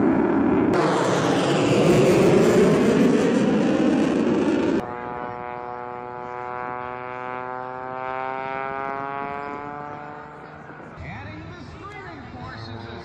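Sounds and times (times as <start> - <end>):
jet engine whine flying past: 0.0 - 7.8.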